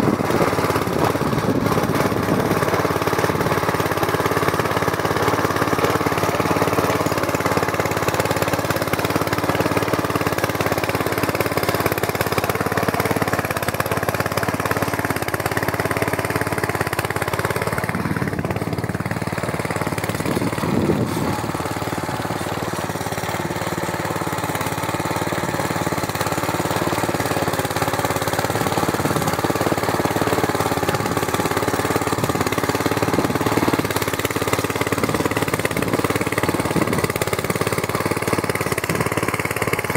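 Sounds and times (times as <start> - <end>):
small petrol engine running under load: 0.0 - 39.9.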